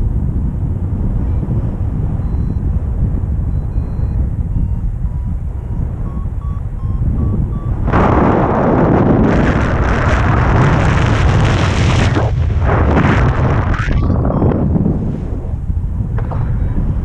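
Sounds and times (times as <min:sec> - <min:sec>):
wind rushing over microphone: 0:00.0 - 0:17.0.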